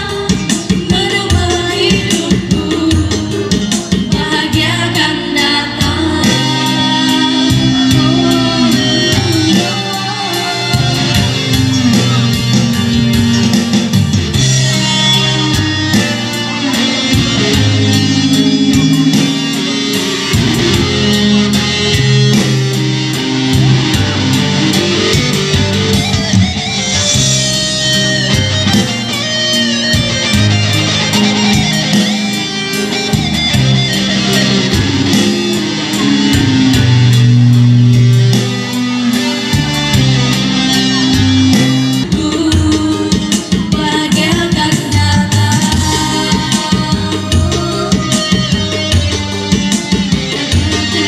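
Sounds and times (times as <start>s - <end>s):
women singing into microphones: 0.0s - 13.1s, 14.4s - 19.4s, 41.0s - 49.0s, 50.4s - 51.0s
electronic keyboard playing: 0.0s - 51.0s.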